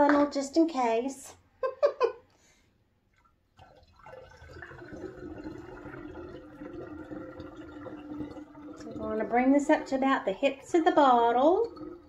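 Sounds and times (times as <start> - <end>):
water pouring through a funnel: 3.0 - 12.0.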